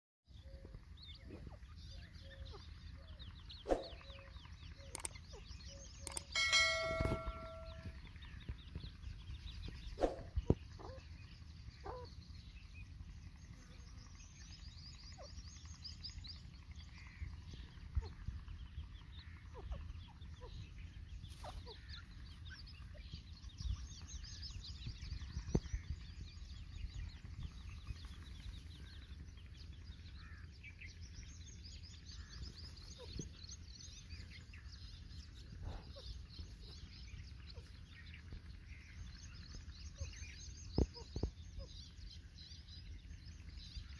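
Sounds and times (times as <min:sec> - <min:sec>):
sharp clicks: 0:04.8 - 0:05.3, 0:06.0 - 0:07.9
bird held note: 0:06.1 - 0:08.0.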